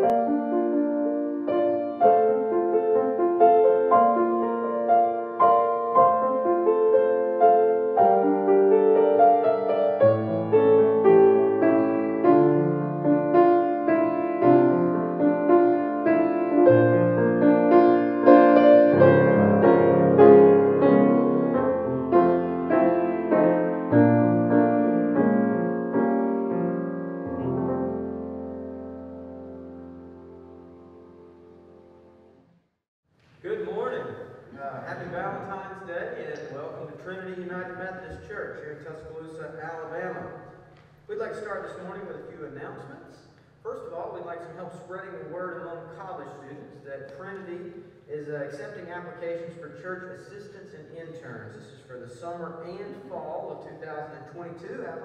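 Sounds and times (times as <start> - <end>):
solo piano: 0.0 - 32.5.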